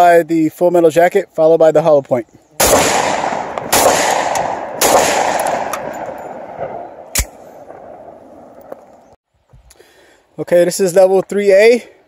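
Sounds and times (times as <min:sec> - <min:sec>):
pistol shots with echo: 0:02.6 - 0:08.2.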